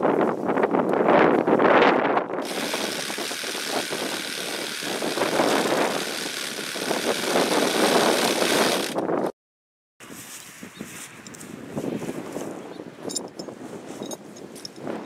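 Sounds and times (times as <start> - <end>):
power saw cutting board: 2.4 - 9.0.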